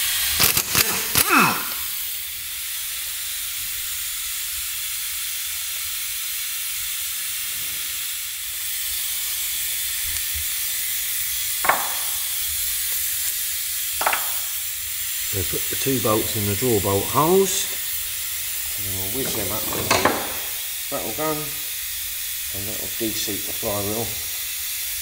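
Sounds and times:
steady hiss: 0.0s - 25.0s
sharp knock: 11.6s - 12.2s, 14.0s - 14.5s.

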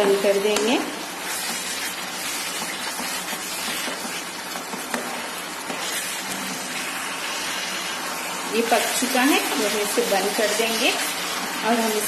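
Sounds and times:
mixture sizzling in a frying pan: 0.0s - 12.0s.

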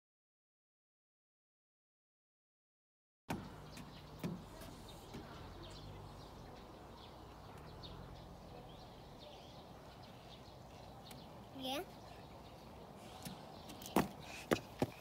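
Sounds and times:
small birds chirping: 3.3s - 15.0s.

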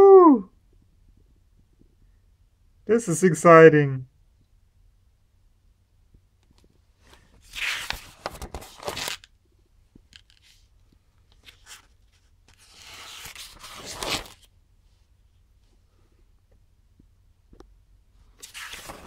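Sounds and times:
paper pages rustling: 7.0s - 9.3s, 11.3s - 14.5s, 18.4s - 19.0s.

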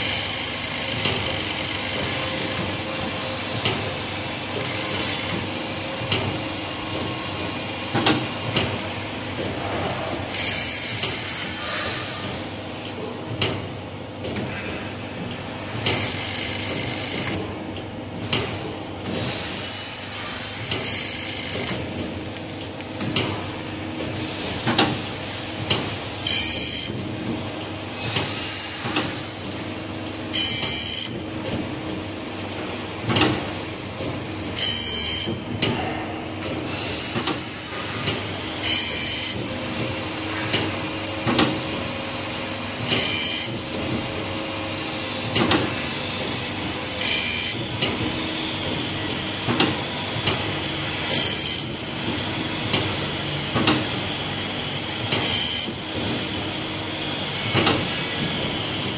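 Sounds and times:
grinding wheel on saw blade: 0.0s - 2.6s, 4.6s - 5.4s.

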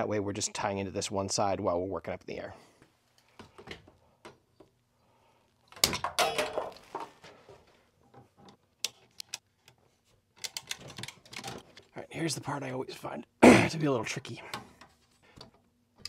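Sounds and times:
tools clattering: 5.8s - 7.4s.

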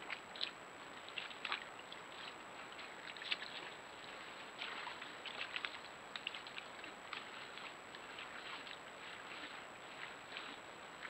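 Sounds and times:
microphone hiss: 0.0s - 11.0s.

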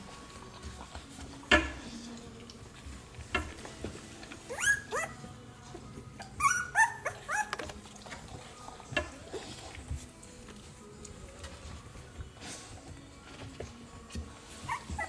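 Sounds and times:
puppies squeaking and whimpering: 4.4s - 5.3s, 6.0s - 7.9s, 14.5s - 15.0s.

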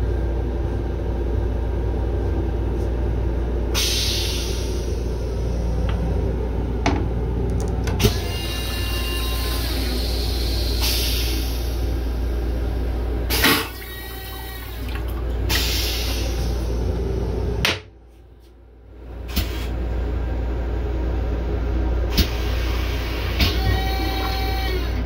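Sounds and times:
steady low rumble: 0.0s - 8.3s
toilet flushing: 7.9s - 17.6s, 22.1s - 25.0s.

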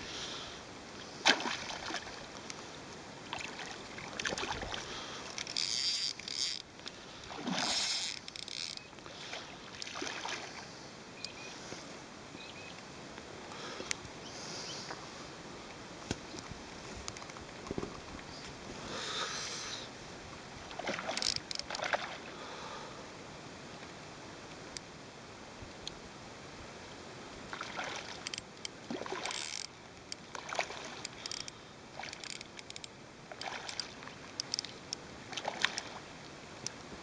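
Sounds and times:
small clicks: 7.8s - 9.0s, 21.1s - 21.8s, 28.2s - 28.7s, 31.0s - 34.8s.

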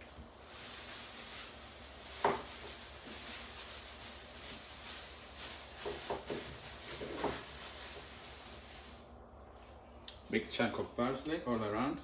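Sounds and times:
faint steady hiss: 0.0s - 12.0s
light kitchen knocks: 2.2s - 2.5s.

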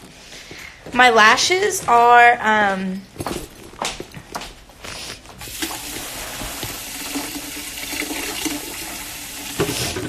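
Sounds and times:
tap water running into sink: 5.4s - 10.0s.

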